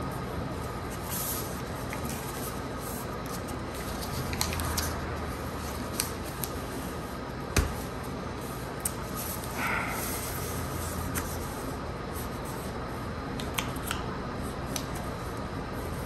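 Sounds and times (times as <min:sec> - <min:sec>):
paper rustling: 0:00.7 - 0:09.5.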